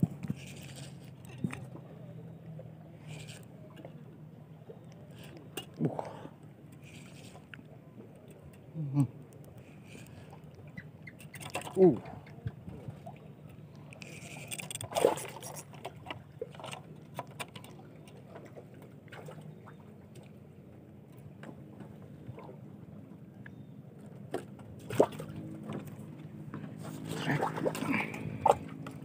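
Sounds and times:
water sloshing and lapping: 0:00.0 - 0:29.0
fishing rod and reel knocking: 0:13.9 - 0:15.9.

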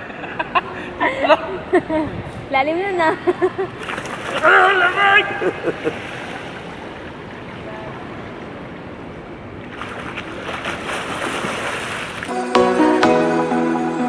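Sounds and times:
pool water sloshing and lapping: 0:02.6 - 0:12.3
swimmer splashing: 0:03.3 - 0:12.4
music: 0:12.3 - 0:14.0.

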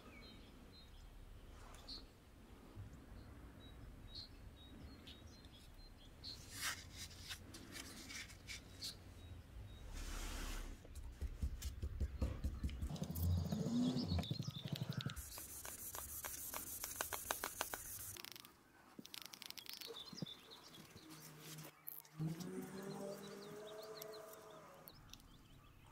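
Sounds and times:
birds calling: 0:12.0 - 0:25.9.

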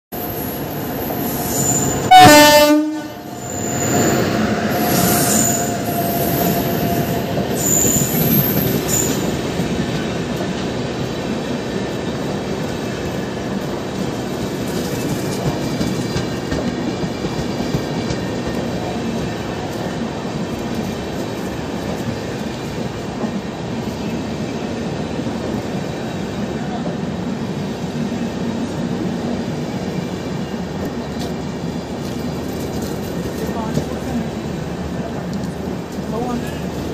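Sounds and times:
train coaches rumbling and clattering: 0:00.2 - 0:36.9
train horn blast: 0:02.0 - 0:03.4.

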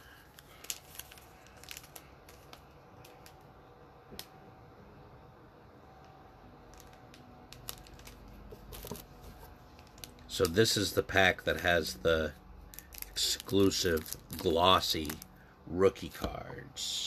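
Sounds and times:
trading cards rustling: 0:00.0 - 0:03.6, 0:06.6 - 0:15.4
light clicks of card packs: 0:00.0 - 0:04.4, 0:06.0 - 0:11.0, 0:12.7 - 0:15.4.

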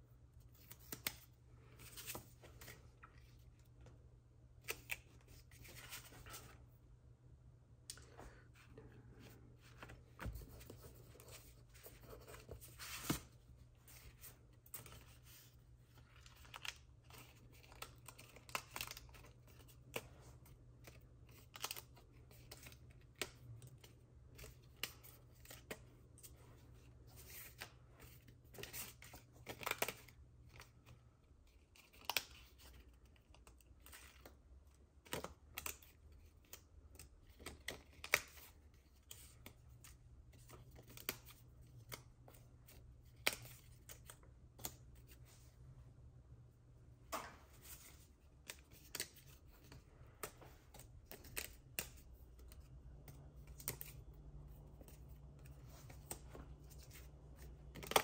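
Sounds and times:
low steady hum: 0:32.5 - 0:58.0.

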